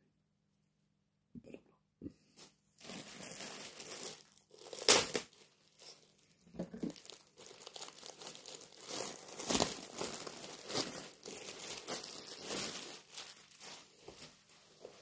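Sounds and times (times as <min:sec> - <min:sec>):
plastic bag crinkling: 0:02.8 - 0:15.0.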